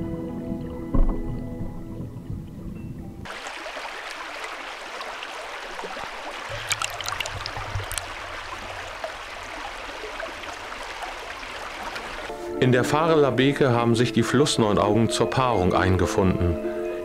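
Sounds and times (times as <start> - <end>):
stream water flowing: 3.2 - 12.3.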